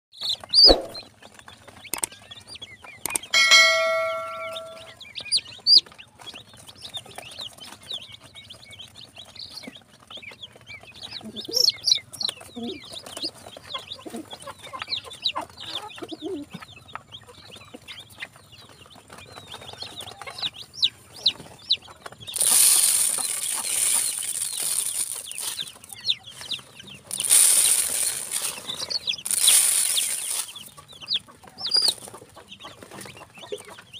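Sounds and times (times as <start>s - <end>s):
chicks peeping: 0.2s - 33.9s
short ringing tone: 3.4s - 4.9s
hissing rustle: 22.4s - 25.7s, 27.1s - 30.6s.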